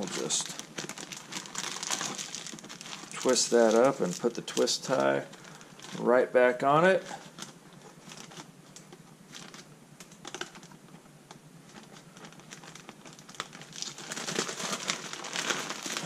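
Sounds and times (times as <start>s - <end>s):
plastic bag crinkling: 0.0s - 6.1s, 7.0s - 10.8s, 11.7s - 16.0s.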